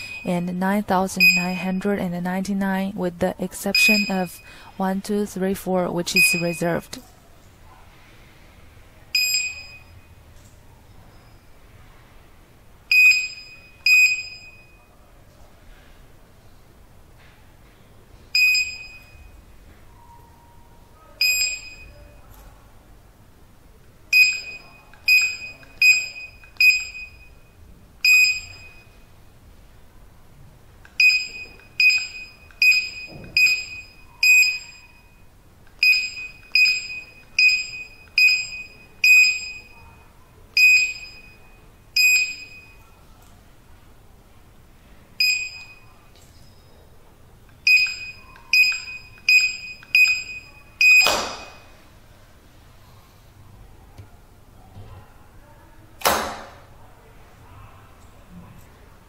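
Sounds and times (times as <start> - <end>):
keypad buzzer beeps: 0.0 - 1.9, 3.7 - 4.6, 6.2 - 6.8, 9.2 - 10.0, 12.9 - 14.7, 24.1 - 27.4, 28.0 - 29.0, 31.0 - 35.2, 35.8 - 39.8, 40.6 - 41.4, 42.0 - 42.8, 45.2 - 46.0, 47.6 - 51.7.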